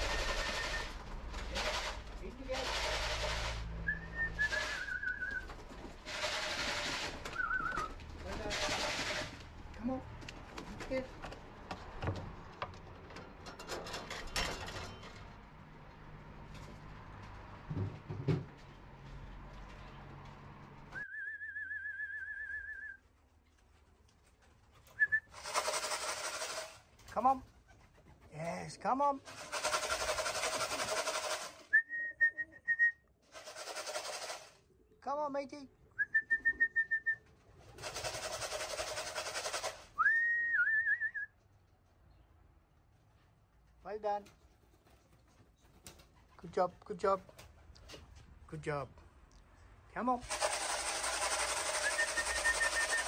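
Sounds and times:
rapid rattling: 0:00.0 - 0:03.7, 0:04.4 - 0:09.5, 0:25.4 - 0:28.3, 0:29.1 - 0:31.7, 0:33.3 - 0:34.6, 0:37.7 - 0:40.0, 0:50.2 - 0:53.0
person whistling: 0:03.9 - 0:05.4, 0:21.0 - 0:23.0, 0:31.7 - 0:33.0, 0:40.0 - 0:41.3, 0:51.8 - 0:53.0.

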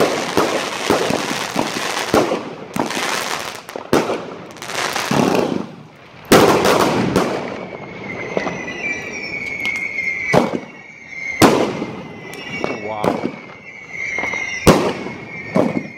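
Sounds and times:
firework bangs: 0:00.0 - 0:15.9
firework crackling: 0:00.0 - 0:15.9
high whistle: 0:06.4 - 0:15.9.

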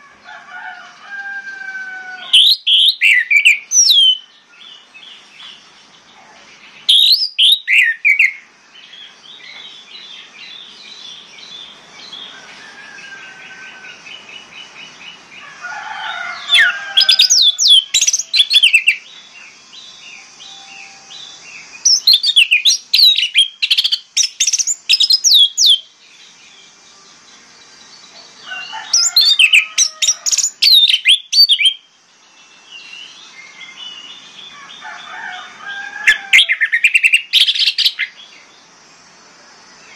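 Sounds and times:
bird trill: 0:02.2 - 0:04.9, 0:06.6 - 0:15.3, 0:16.3 - 0:25.9, 0:28.1 - 0:31.9, 0:35.9 - 0:38.4.

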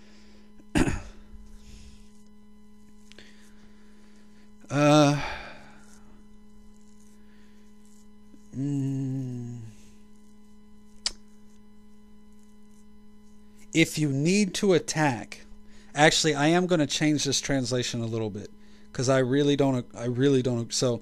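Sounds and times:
electrical mains hum: 0:00.0 - 0:21.0
man making wordless sounds: 0:04.7 - 0:05.4, 0:08.5 - 0:09.8
sharp click: 0:11.0 - 0:11.3.

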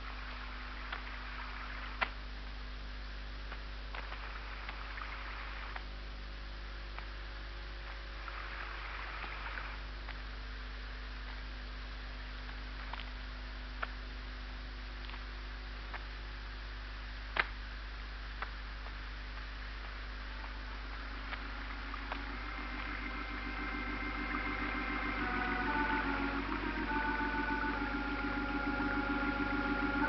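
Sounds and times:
low hum and hiss: 0:00.0 - 0:30.0
clicks and pops: 0:18.4 - 0:22.9.

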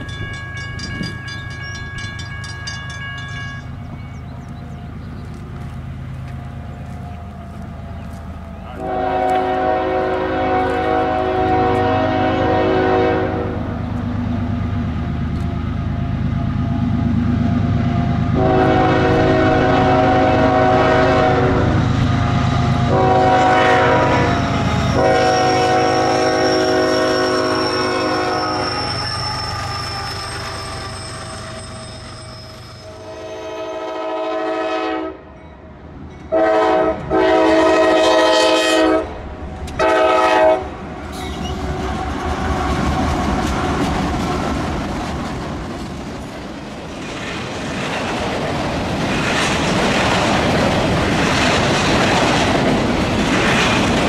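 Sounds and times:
locomotive engine: 0:00.0 - 0:34.0, 0:39.1 - 0:54.0
train cars rolling: 0:00.0 - 0:34.8, 0:35.4 - 0:54.0
locomotive air horn blasts: 0:08.8 - 0:13.6, 0:18.3 - 0:21.8, 0:22.8 - 0:28.9, 0:32.8 - 0:35.3, 0:36.3 - 0:39.2, 0:39.8 - 0:42.5.

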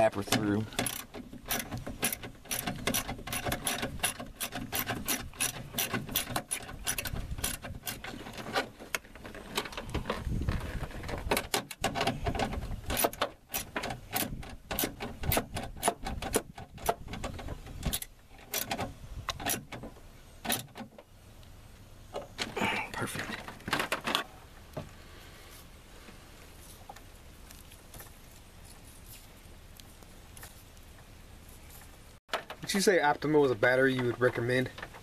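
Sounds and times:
hand ratchet clicking: 0:00.7 - 0:08.2, 0:12.9 - 0:19.8.

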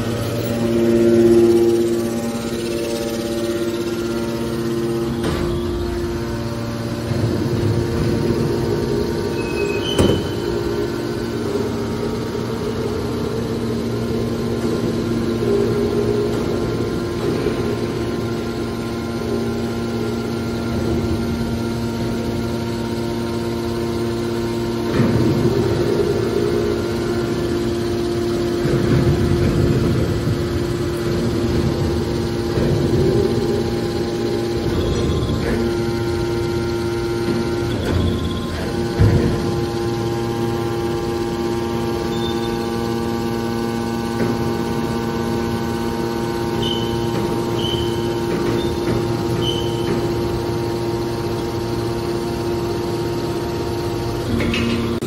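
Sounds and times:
electric motors humming and whining: 0:00.0 - 0:55.0.

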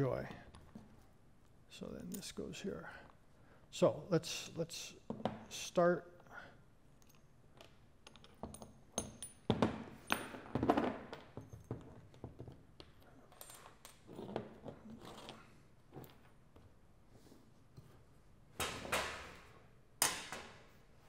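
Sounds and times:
metal parts clinking on a workbench: 0:07.0 - 0:12.1.

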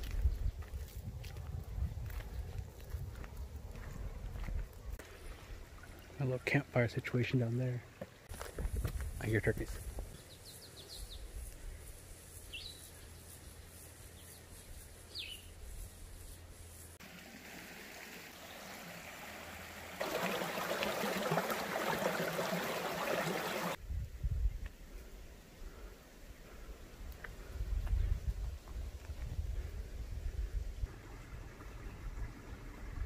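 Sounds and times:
faint outdoor background: 0:00.0 - 0:33.0
running water rushing: 0:17.0 - 0:23.8.

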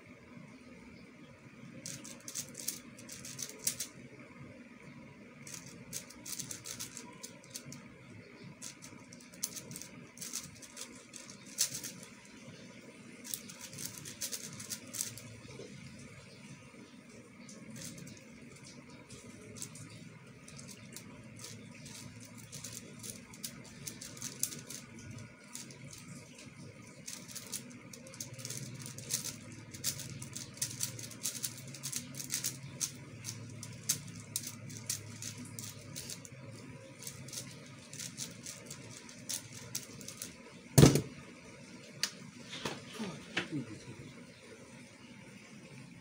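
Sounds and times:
puzzle cube clicking: 0:01.8 - 0:04.0, 0:05.4 - 0:07.8, 0:08.6 - 0:12.6, 0:13.2 - 0:15.3, 0:17.7 - 0:18.2, 0:20.5 - 0:26.2, 0:26.8 - 0:36.3, 0:36.9 - 0:40.3
loud thump: 0:40.8 - 0:41.2.

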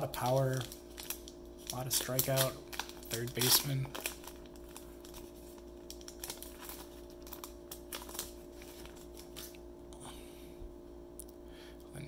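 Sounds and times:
foil wrapper crinkling: 0:00.0 - 0:09.6
faint steady hum: 0:00.0 - 0:12.0.

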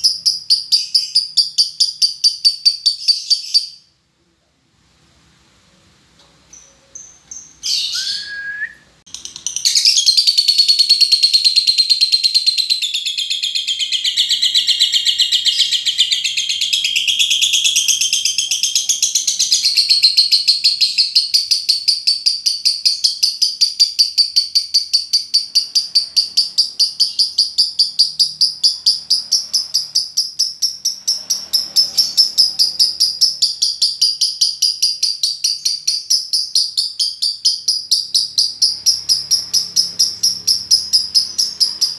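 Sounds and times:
short high bird chirps: 0:06.5 - 0:18.4
lovebird chattering trill: 0:09.1 - 0:41.9.

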